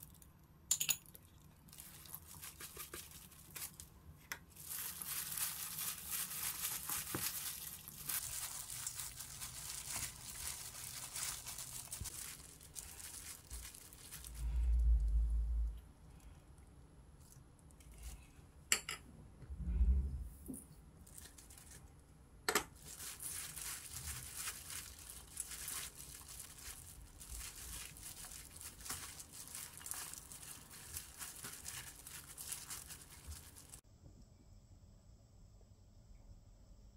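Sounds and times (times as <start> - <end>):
plastic glove crinkling: 1.3 - 15.2, 21.0 - 22.0, 22.7 - 33.8
wet greens rustling in a bowl: 1.6 - 15.0, 21.0 - 21.9, 22.8 - 33.8.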